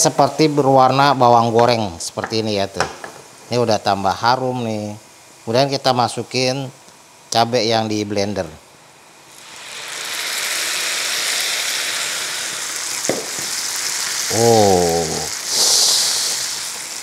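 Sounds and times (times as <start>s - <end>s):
chili paste sizzling in oil: 9.2s - 17.0s.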